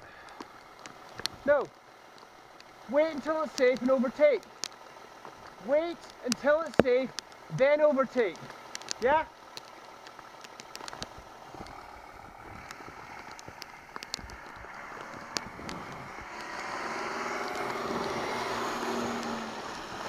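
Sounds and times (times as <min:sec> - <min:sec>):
wind and bicycle road noise: 0:00.0 - 0:20.0
sharp ticks: 0:02.1 - 0:11.8, 0:12.6 - 0:16.9
car passing on wet road: 0:10.2 - 0:20.0.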